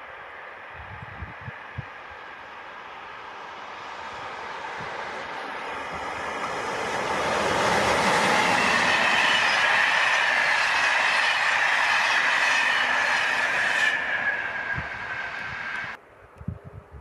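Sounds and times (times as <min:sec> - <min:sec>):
passenger train passing at speed: 0:00.0 - 0:17.0.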